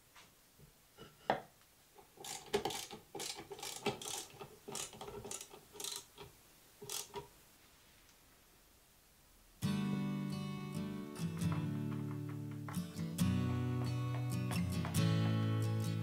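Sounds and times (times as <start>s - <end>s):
screwdriver clicking and whirring: 2.2s - 7.3s
plate knocking on wood: 11.4s - 12.9s.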